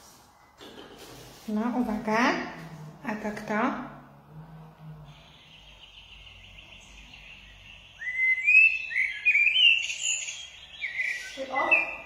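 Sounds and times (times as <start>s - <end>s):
blackbird singing: 5.0s - 12.0s.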